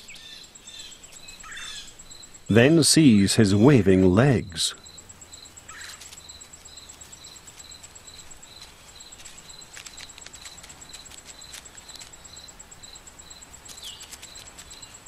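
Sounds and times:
insect chirping: 0.0s - 15.0s
faint ticks: 4.8s - 15.0s.

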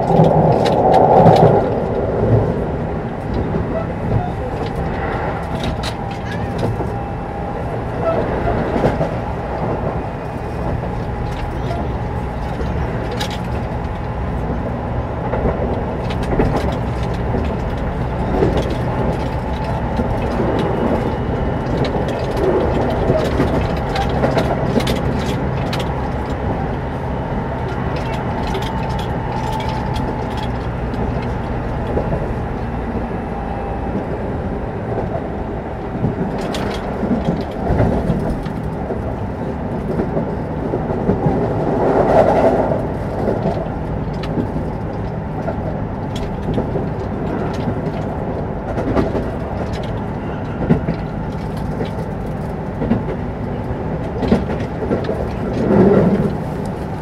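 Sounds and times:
faint traction motor whine: 0.0s - 41.5s
clacks over rail joints: 0.0s - 57.0s
train wheels rumbling on rails: 0.0s - 57.0s.

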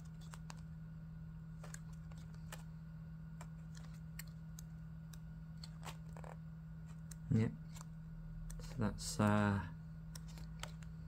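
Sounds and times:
book pages turning: 0.0s - 0.7s, 1.6s - 2.7s, 3.4s - 7.9s, 10.1s - 11.0s
steady low hum: 0.0s - 11.0s.

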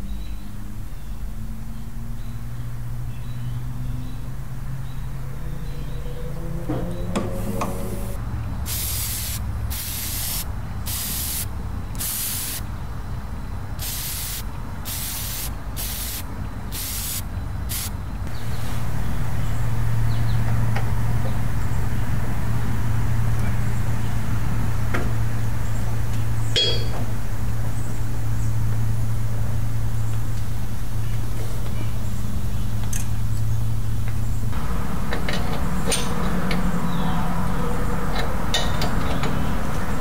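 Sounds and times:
tractor engine humming: 0.0s - 40.0s
spray can hissing: 8.7s - 12.6s, 13.8s - 17.9s.

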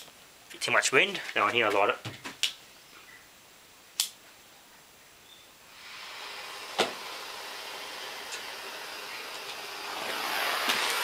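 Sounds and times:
blowtorch gas hissing: 5.7s - 11.0s
blowtorch igniter click: 6.7s - 7.0s.

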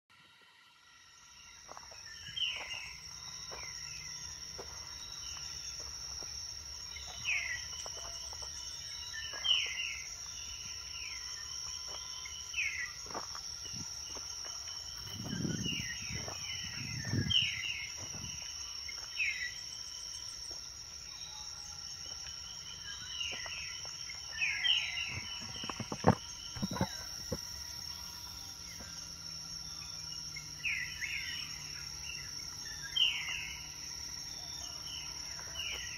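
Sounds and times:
high-pitched insect drone: 0.1s - 35.9s.

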